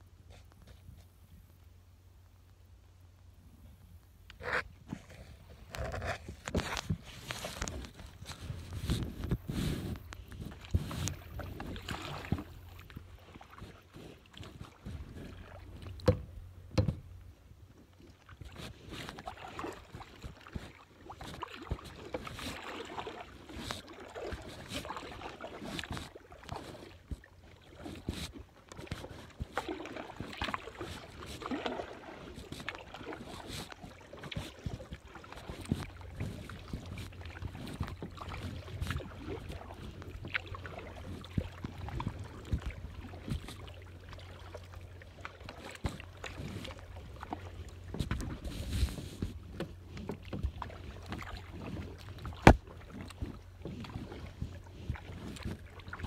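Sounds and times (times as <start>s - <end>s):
low steady rumble: 0.0s - 20.9s
paddle splashing water: 4.4s - 56.0s
small knocks: 16.0s - 17.1s.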